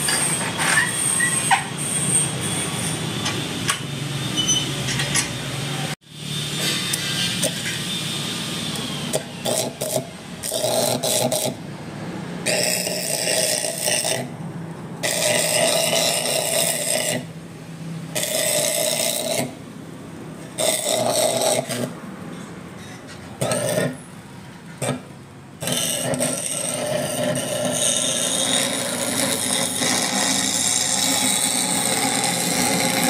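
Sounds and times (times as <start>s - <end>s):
power tool working on metal: 6.4s - 11.6s, 12.4s - 14.3s, 15.0s - 17.3s, 18.1s - 19.6s, 20.5s - 22.0s, 25.6s - 33.0s.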